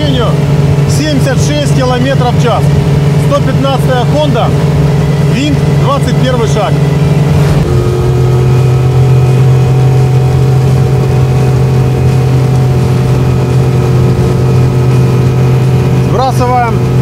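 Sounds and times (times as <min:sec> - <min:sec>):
outboard motor running: 0:00.0 - 0:17.0
wind noise: 0:06.8 - 0:17.0.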